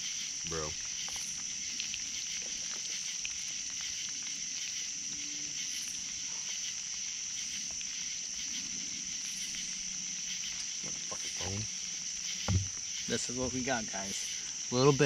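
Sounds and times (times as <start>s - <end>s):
night insects chorus: 0.0s - 15.0s.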